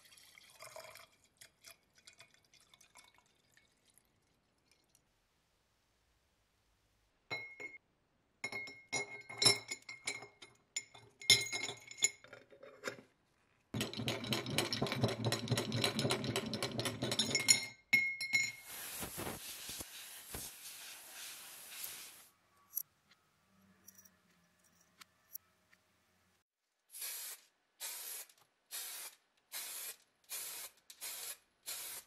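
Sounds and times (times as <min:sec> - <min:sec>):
metal parts clinking in glass jar: 0:08.5 - 0:12.9
soft steady hiss: 0:18.5 - 0:23.8.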